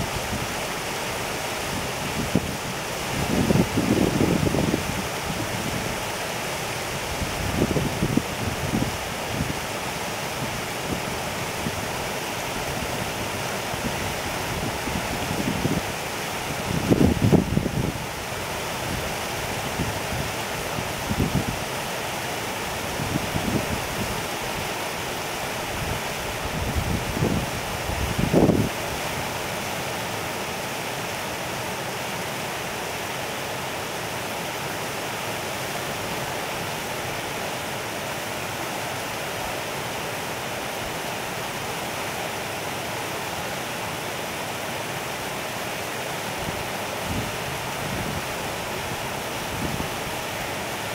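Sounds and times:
stream babbling: 0.0 - 50.9
wind rumble on microphone: 1.7 - 6.0, 7.0 - 9.6, 13.8 - 18.1, 18.9 - 21.7, 25.7 - 28.9, 46.4 - 50.2.

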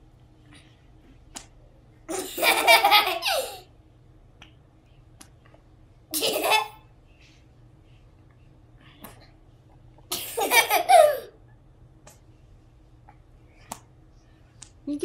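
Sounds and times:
young children laughing: 2.1 - 3.7, 6.1 - 6.8, 10.1 - 11.4.

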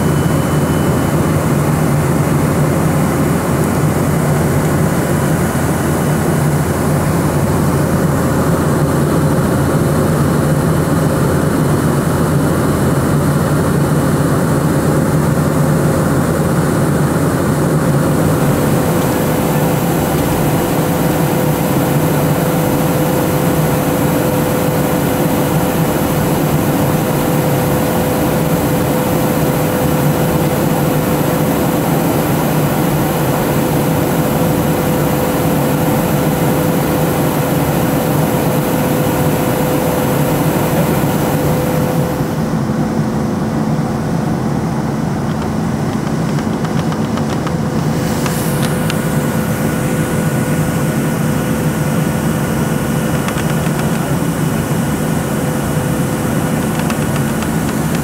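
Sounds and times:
jet engine drone: 0.0 - 58.0
airflow hiss: 47.7 - 53.1.

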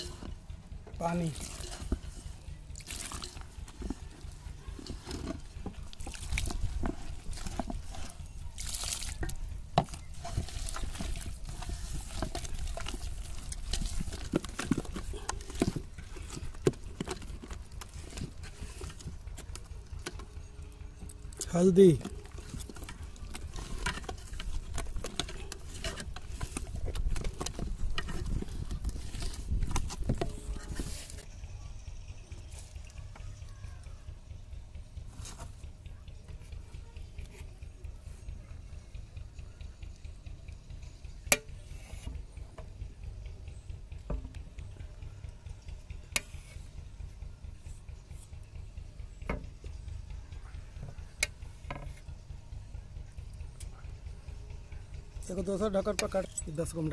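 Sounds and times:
fingers scraping metal bowl: 0.0 - 20.3, 21.3 - 31.2
low steady rumble: 0.0 - 56.9
wet batter slapping and squelching: 0.9 - 20.3.

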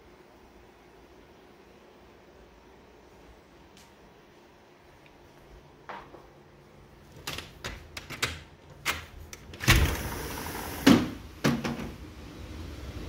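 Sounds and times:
door handle clicks and rattles: 7.2 - 10.0
glass door sliding rumble: 9.5 - 11.2.

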